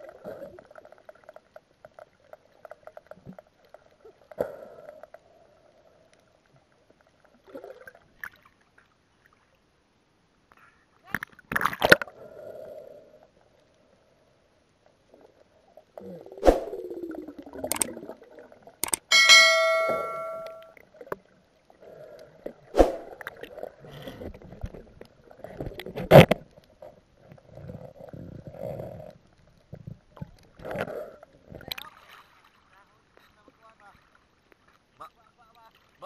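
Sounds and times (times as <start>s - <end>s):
underwater water noise: 11.3s - 33.3s
bell-like ding: 19.1s - 20.7s.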